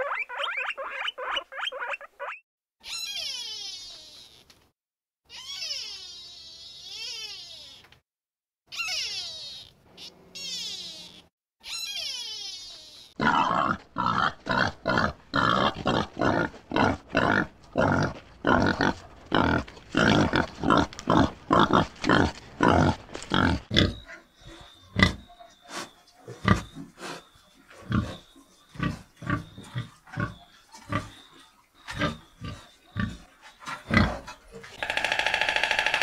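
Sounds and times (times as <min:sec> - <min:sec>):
pigs grunting and squealing: 0:08.8 - 0:35.0.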